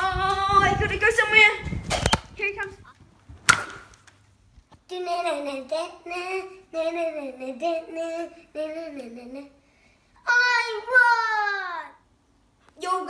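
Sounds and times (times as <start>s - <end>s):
child singing wordless tune: 0.0s - 1.6s, 4.9s - 9.6s.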